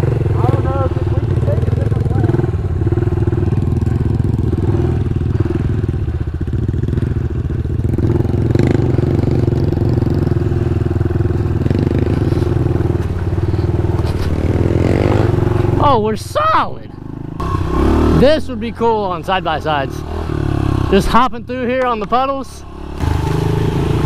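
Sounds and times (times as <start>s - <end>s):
small motorbike engine running: 0.0s - 15.8s.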